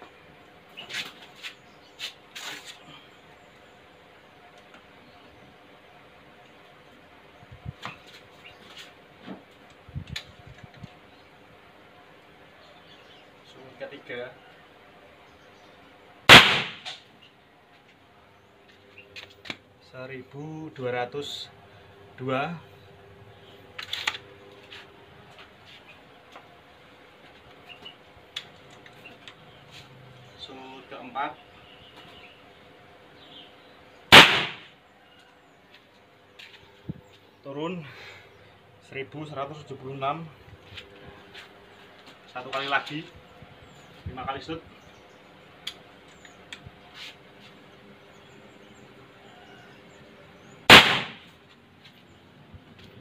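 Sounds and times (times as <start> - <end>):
faint steady hum: 0.0 - 53.0
air rifle shot: 16.3 - 17.0, 34.1 - 34.7, 50.7 - 51.3.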